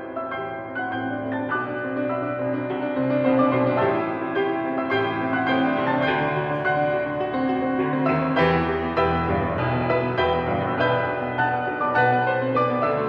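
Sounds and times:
piano background music: 0:00.0 - 0:13.0.

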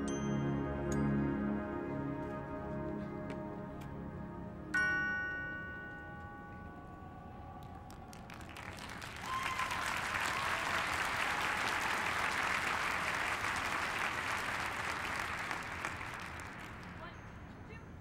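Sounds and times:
large crowd applauding: 0:07.6 - 0:17.1.

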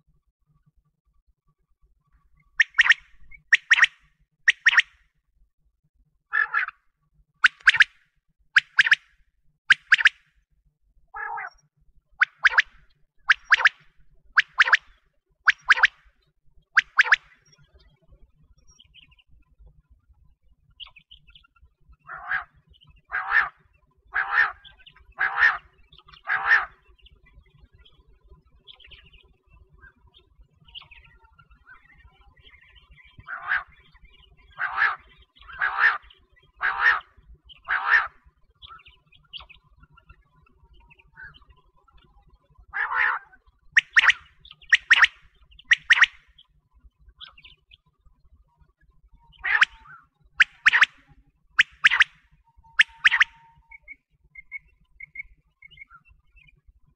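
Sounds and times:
faint high chirps: 0:02.4 - 0:05.0, 0:07.4 - 0:08.0, 0:08.6 - 0:09.1, 0:09.7 - 0:10.2, 0:12.2 - 0:14.9, 0:15.5 - 0:16.0, 0:16.8 - 0:17.6, 0:43.8 - 0:46.6, 0:49.2 - 0:56.6
quail harsh calls: 0:02.6 - 0:03.9, 0:04.5 - 0:04.9, 0:06.3 - 0:06.8, 0:07.4 - 0:07.9, 0:08.6 - 0:09.0, 0:09.7 - 0:10.1, 0:11.2 - 0:11.6, 0:12.2 - 0:12.7, 0:13.3 - 0:13.8, 0:15.5 - 0:15.9, 0:16.8 - 0:17.3, 0:22.1 - 0:26.8, 0:33.2 - 0:33.8, 0:34.6 - 0:38.2, 0:42.8 - 0:46.2, 0:49.4 - 0:51.0, 0:51.6 - 0:53.7.

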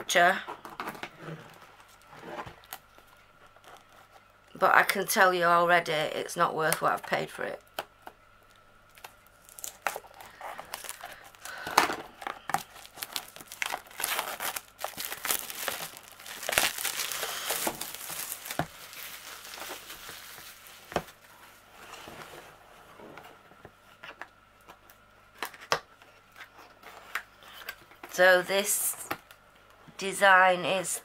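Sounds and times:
packaging crinkling and rustling: 0:08.9 - 0:22.6.

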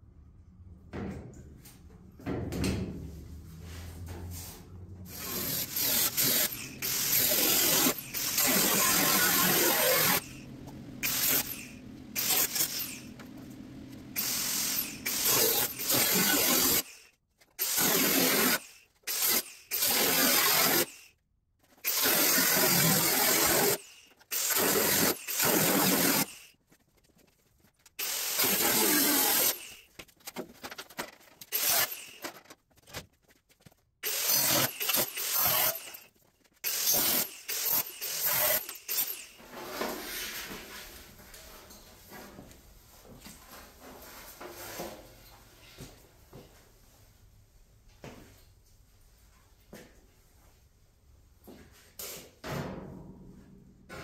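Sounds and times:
power tool on steel roof panel: 0:05.1 - 0:10.4, 0:11.0 - 0:13.2, 0:14.1 - 0:21.1, 0:21.8 - 0:26.5, 0:28.0 - 0:29.9, 0:31.5 - 0:32.4, 0:34.0 - 0:39.4.

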